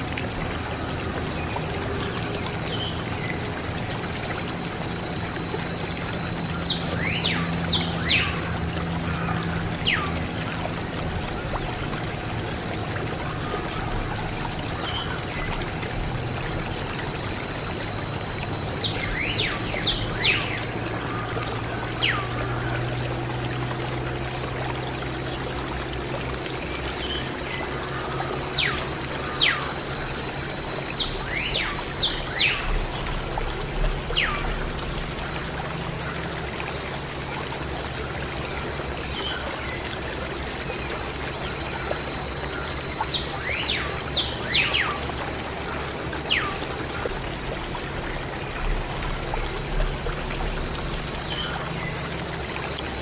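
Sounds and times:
faint high whine: 0.0s - 53.0s
water pouring and trickling: 0.0s - 53.0s.

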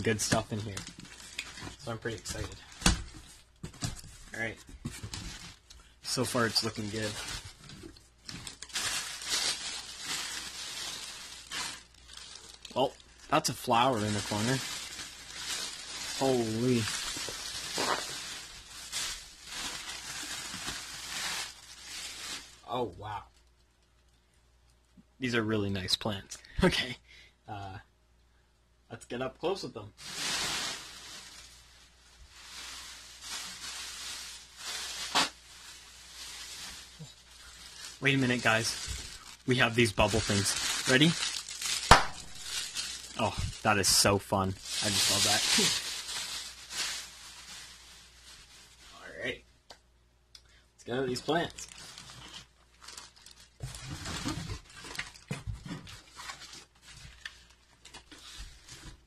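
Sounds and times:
plastic packaging crinkling: 0.0s - 22.8s, 30.0s - 49.1s, 51.0s - 59.0s
plastic bags and cardboard rustling: 0.0s - 23.2s, 29.9s - 49.4s, 50.9s - 59.0s.

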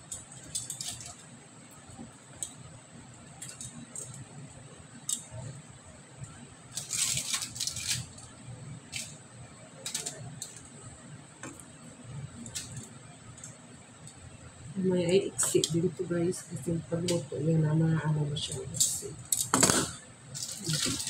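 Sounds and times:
tongs clicking on foil tray: 0.0s - 1.2s.

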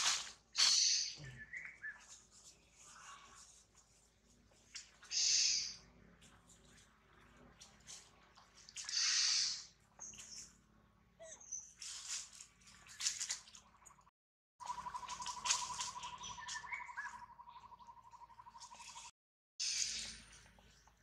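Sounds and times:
dry leaves rustling underfoot: 0.0s - 4.7s, 11.8s - 13.5s, 14.6s - 17.1s
rapid trill of bird or insect: 14.6s - 20.2s.

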